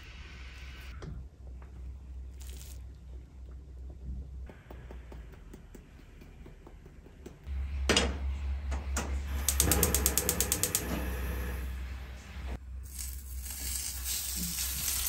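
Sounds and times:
gas flame rushing: 8.9 - 15.0
gas igniter clicking rapidly: 9.4 - 10.9.

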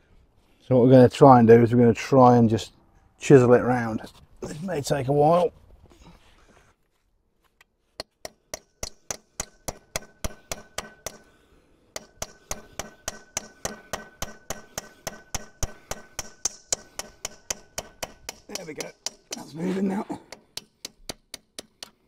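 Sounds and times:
hammer striking chisel on metal: 8.0 - 19.6, 20.3 - 22.0.

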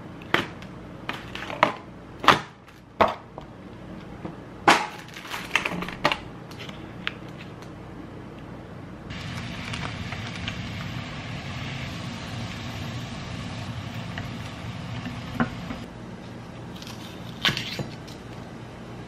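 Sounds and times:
water boiling in a pan: 9.1 - 15.9.

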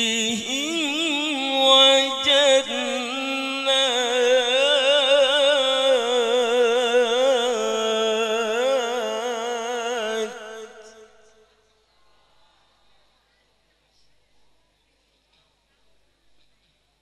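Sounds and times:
man chanting into a microphone: 0.0 - 11.3.

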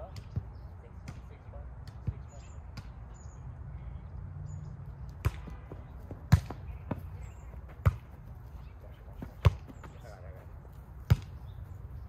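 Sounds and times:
volleyball being smacked: 5.2 - 5.7, 6.3 - 7.0.

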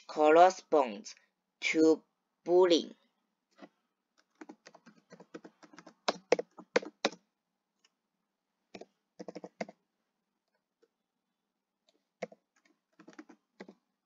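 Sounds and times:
computer keyboard typing: 4.2 - 7.2, 8.7 - 9.8, 12.2 - 13.8.

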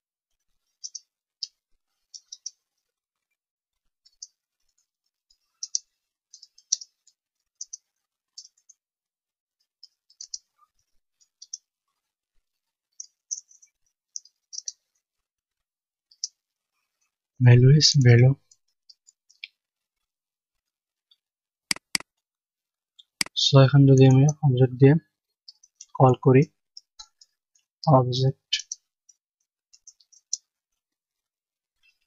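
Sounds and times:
computer keyboard typing: 21.7 - 22.0.

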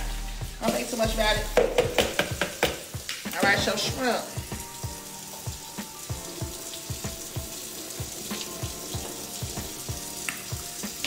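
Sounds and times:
music with thumping beat: 0.0 - 11.0
steady kitchen hiss: 0.0 - 11.0.

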